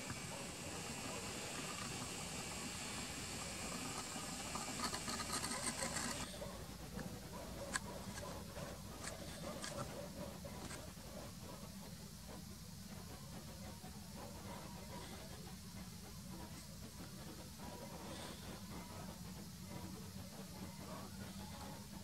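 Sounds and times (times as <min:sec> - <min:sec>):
zoom lens motor whirring: 0:03.2 - 0:06.3.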